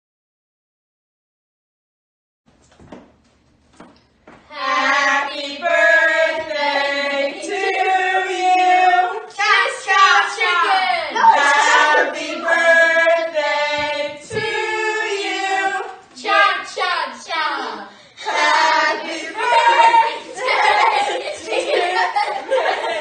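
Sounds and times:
children singing together: 0:04.5 - 0:23.0.

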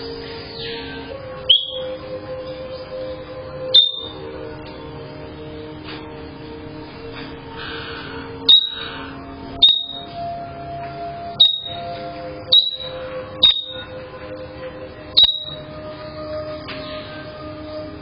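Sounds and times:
soft background music: 0:00.0 - 0:18.0
parrot piercing high calls: 0:00.6 - 0:01.9, 0:03.7 - 0:04.2, 0:07.6 - 0:10.1, 0:11.3 - 0:11.9, 0:12.5 - 0:13.8, 0:15.2 - 0:15.6.

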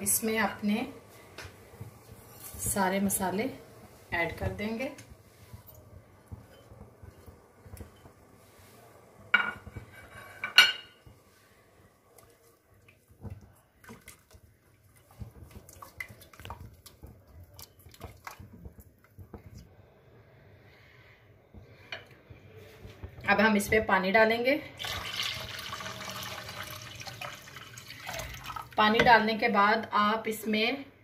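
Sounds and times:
spatula stirring liquid in a pot: 0:01.7 - 0:08.9, 0:11.1 - 0:19.8
knocks and scrapes against pot: 0:05.5 - 0:08.2, 0:09.4 - 0:11.2
kitchenware clanking: 0:09.3 - 0:11.0.

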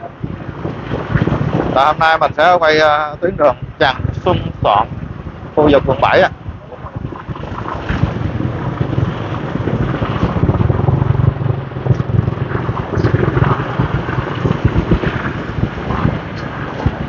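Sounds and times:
traffic of scooters and cars: 0:00.0 - 0:17.0
wind rumbling on microphone: 0:00.0 - 0:17.0
motorbike engine running: 0:07.5 - 0:17.0.

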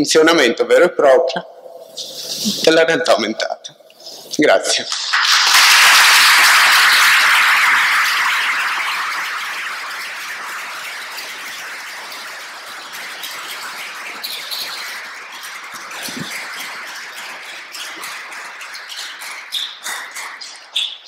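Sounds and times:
steady hiss: 0:01.8 - 0:02.9, 0:03.9 - 0:17.7.

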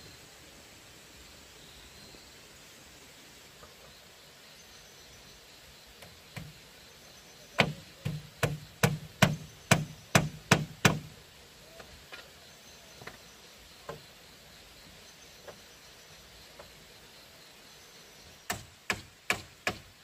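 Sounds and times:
tool striking bamboo: 0:07.6 - 0:11.1, 0:18.5 - 0:20.0.

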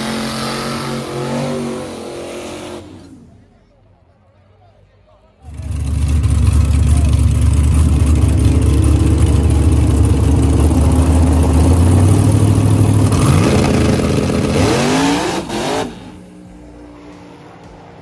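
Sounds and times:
drag car engine revving: 0:00.0 - 0:03.5, 0:05.4 - 0:17.9.

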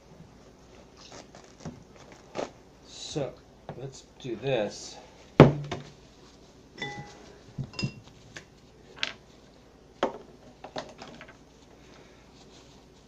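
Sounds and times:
glass bowl clinking: 0:06.8 - 0:08.0.

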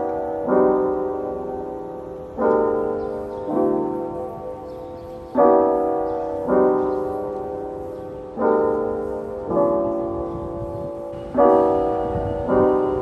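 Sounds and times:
soft piano chords: 0:00.0 - 0:13.0.

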